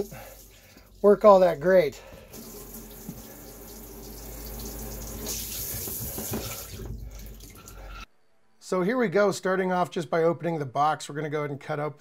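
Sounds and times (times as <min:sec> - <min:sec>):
shower water spraying into tub: 0:00.0 - 0:07.9.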